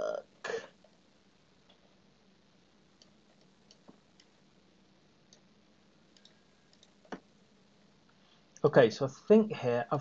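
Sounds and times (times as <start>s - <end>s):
computer mouse clicks: 3.0s - 4.4s, 6.1s - 7.3s.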